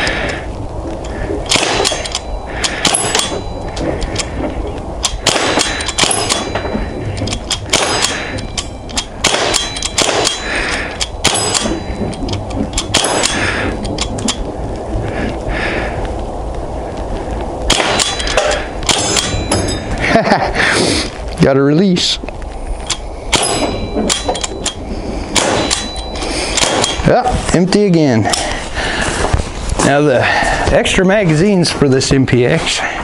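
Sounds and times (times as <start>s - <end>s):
air pistol shots: 1.5s - 2.2s, 2.8s - 3.4s, 5.0s - 6.5s, 7.7s - 8.3s, 9.2s - 10.5s, 11.2s - 11.8s, 12.9s - 13.4s, 17.7s - 19.4s, 23.3s - 23.6s, 25.4s - 25.9s, 26.6s - 27.0s.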